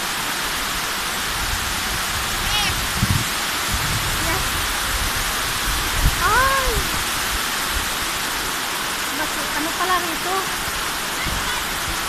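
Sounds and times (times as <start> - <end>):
waterfall rushing over rocks: 0.0 - 12.0
person giving high call: 2.4 - 2.8, 6.2 - 6.9.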